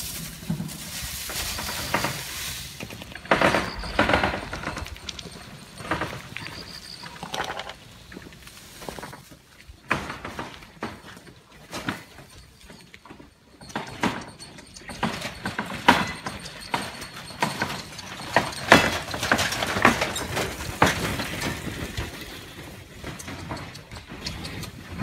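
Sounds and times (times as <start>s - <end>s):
dogs eating from metal bowl: 13.3s - 22.2s.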